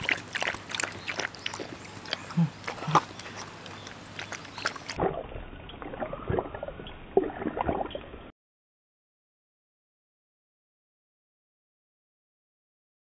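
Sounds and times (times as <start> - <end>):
dog lapping water from bowl: 0.0 - 8.0.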